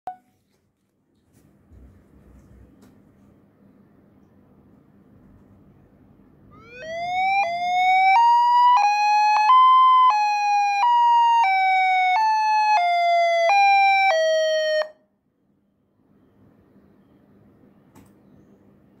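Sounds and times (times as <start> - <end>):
electronic siren tone: 6.5 - 15.0.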